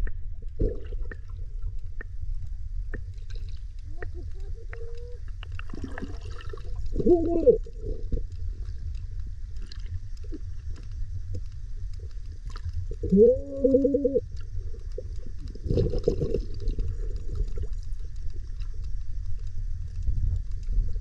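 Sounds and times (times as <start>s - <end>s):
underwater water rumble: 0.0s - 21.0s
faint clicks: 1.0s - 5.7s
muffled hooting tone: 13.0s - 14.2s.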